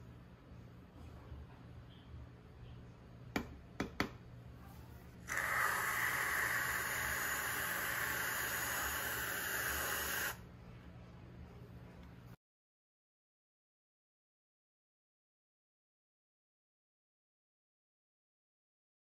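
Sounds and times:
aerosol can hissing: 5.3 - 10.4.

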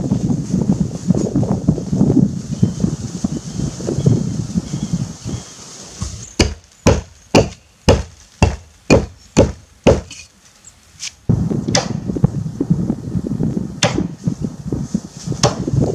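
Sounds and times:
low rustle: 0.0 - 7.3
axe chopping tree trunk: 6.0 - 10.3, 11.7 - 12.0, 13.8 - 14.2, 15.4 - 15.7.

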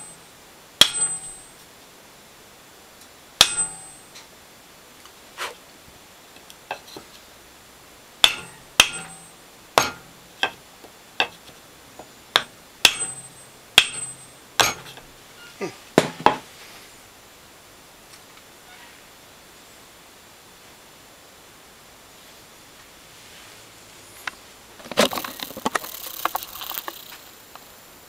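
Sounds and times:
hammer striking wooden block: 0.8 - 1.4, 3.4 - 4.0, 8.2 - 9.2, 9.8 - 10.6, 12.3 - 15.0, 16.0 - 16.4.

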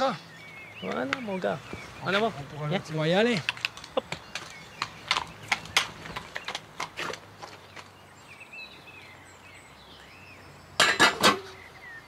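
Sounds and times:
small birds chirping: 0.0 - 12.0
horse hooves clopping on hard ground: 0.9 - 8.0.

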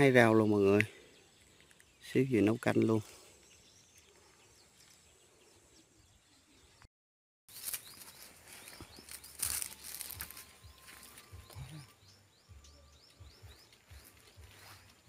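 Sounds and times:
small bird chirping: 0.1 - 6.9, 7.5 - 15.0
rustling handling noise: 7.5 - 11.4.

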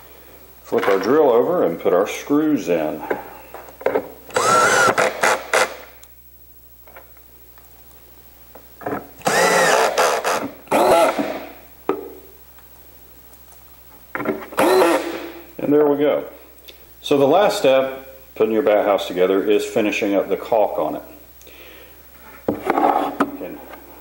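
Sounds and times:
cordless drill motor: 4.3 - 5.9, 9.2 - 11.5, 14.6 - 15.4
screws clicking: 9.2 - 11.4, 14.6 - 15.2.

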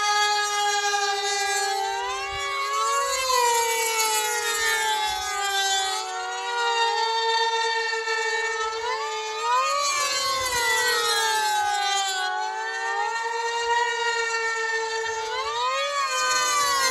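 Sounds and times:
rc plane engines whining: 0.0 - 16.9.

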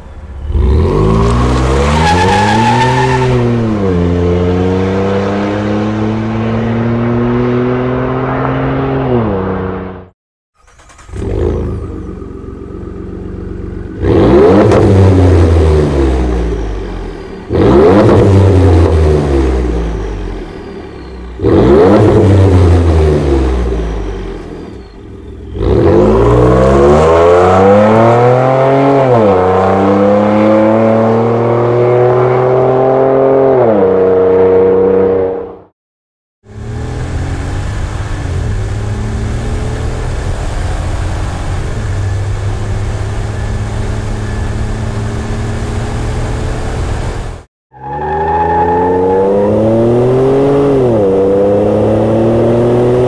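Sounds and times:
truck exhaust revving: 10.8 - 20.5, 25.3 - 33.8
quieter steady exhaust note: 10.9 - 26.4, 36.4 - 47.4.

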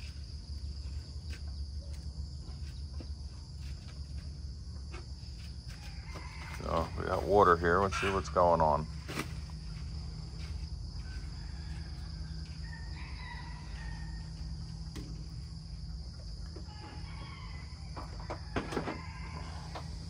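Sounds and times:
high-pitched insect drone: 0.0 - 20.0
faint rooster crowing: 5.6 - 8.3, 9.6 - 20.0.

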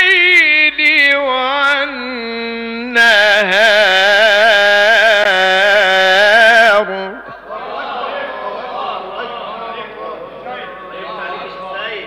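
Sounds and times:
man chanting: 0.0 - 12.0.

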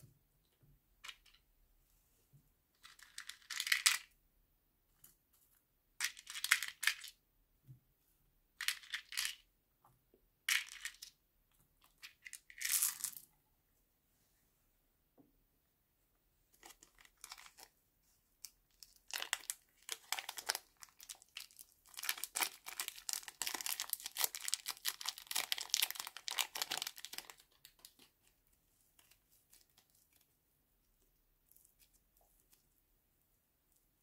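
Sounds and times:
plastic bag crinkling: 18.9 - 28.1.

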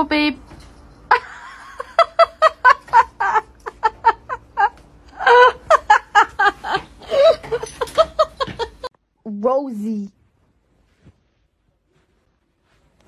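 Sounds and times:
person laughing: 1.2 - 8.9.

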